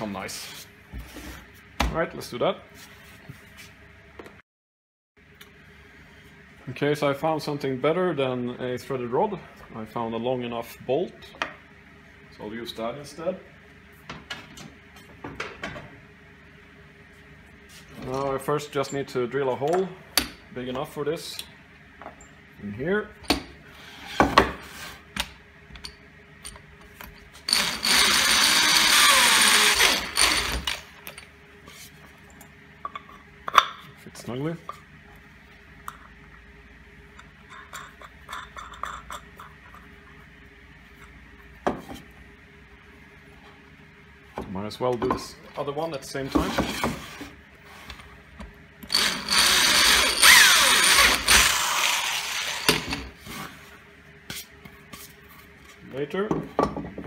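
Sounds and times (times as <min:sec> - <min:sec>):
electric drill boring: 0:27.5 - 0:30.9, 0:48.9 - 0:53.1.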